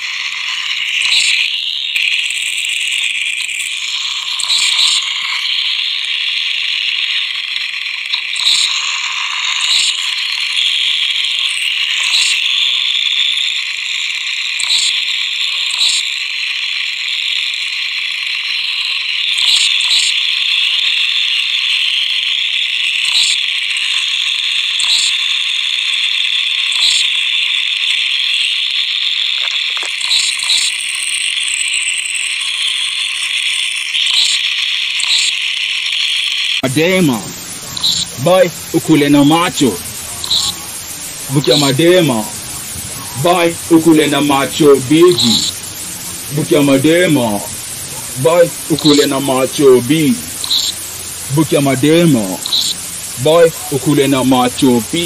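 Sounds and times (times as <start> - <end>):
rasping ratchet-like noise: 0.0 - 55.0
sharp clicks: 7.0 - 12.6, 14.6 - 16.2, 18.6 - 20.2, 24.7 - 25.2, 29.3 - 32.2, 34.0 - 36.7, 37.6 - 40.8, 50.2 - 50.9, 51.6 - 55.0.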